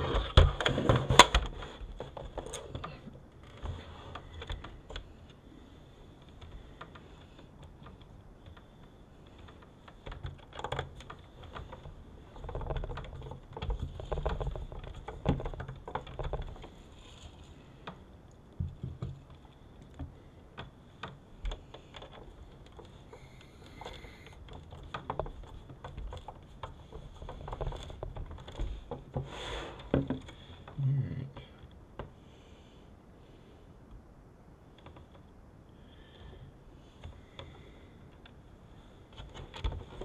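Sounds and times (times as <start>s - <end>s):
light clicks and taps on metal: 0.6s - 30.8s.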